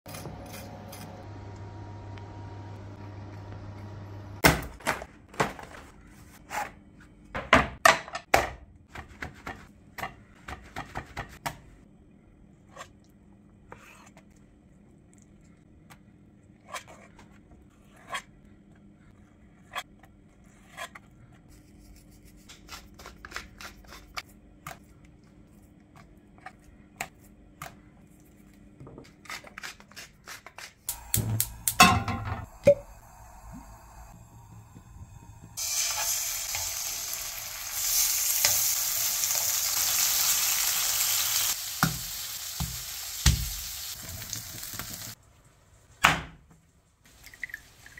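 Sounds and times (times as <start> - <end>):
metal cookware clattering: 31.6 - 32.5.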